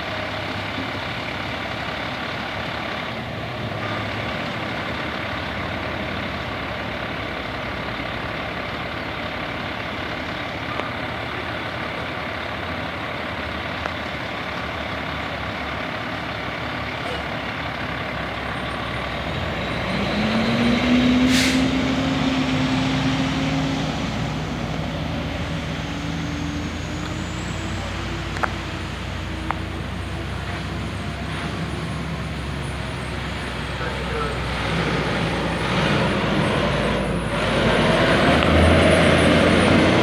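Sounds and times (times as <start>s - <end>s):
fire truck diesel engine: 0.0s - 40.0s
air brake hiss: 21.2s - 21.8s.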